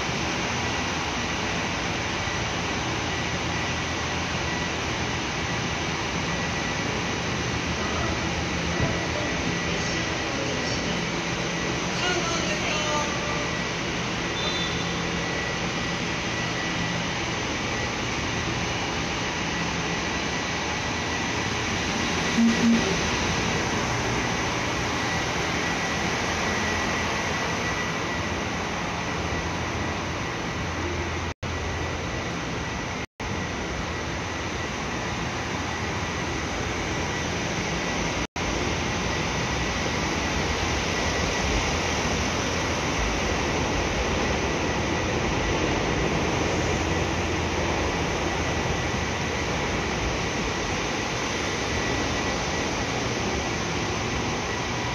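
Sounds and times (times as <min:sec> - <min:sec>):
diesel railcars idling: 0:00.0 - 0:54.9
short low tones: 0:22.3 - 0:23.2.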